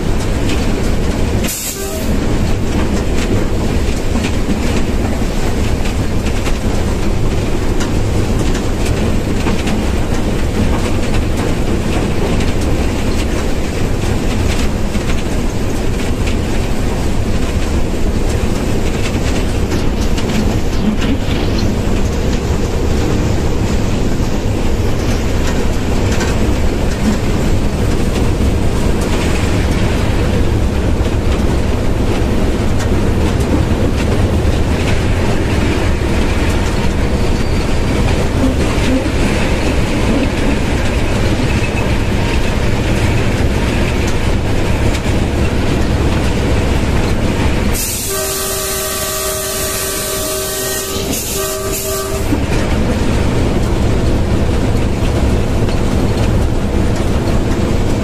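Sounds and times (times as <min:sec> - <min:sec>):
locomotive engine and wheels rumbling: 0:00.0 - 0:58.0
locomotive horn blast: 0:01.5 - 0:02.3, 0:38.4 - 0:39.3, 0:47.8 - 0:52.5.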